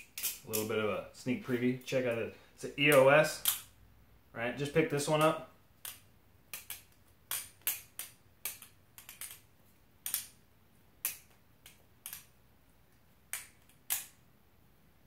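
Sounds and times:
butterfly knife clacking: 0.0s - 0.7s.

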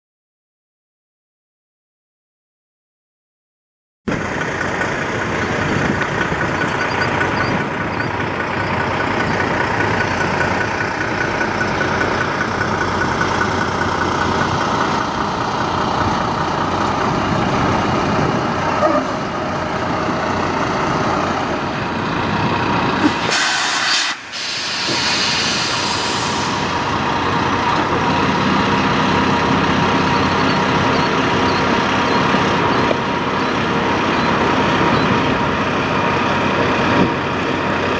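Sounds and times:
truck diesel engine running: 4.1s - 37.9s
air brake hiss: 23.0s - 26.8s.

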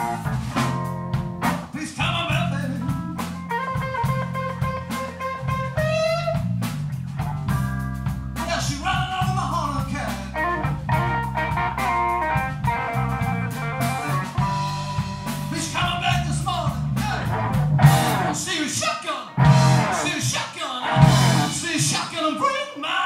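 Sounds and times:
blues-rock band playing: 0.0s - 22.2s
man singing: 1.7s - 3.0s, 8.4s - 10.4s, 15.5s - 17.3s, 18.3s - 23.0s.

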